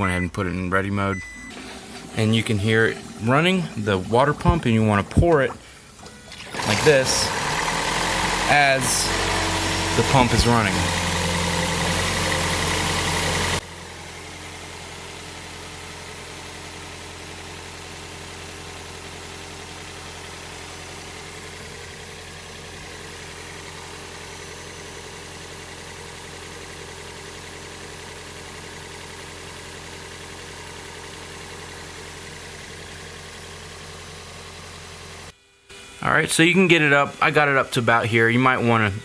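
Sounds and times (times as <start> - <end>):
coolant pump humming: 0.0 - 39.0
loud sound cutting off: 6.1 - 13.7.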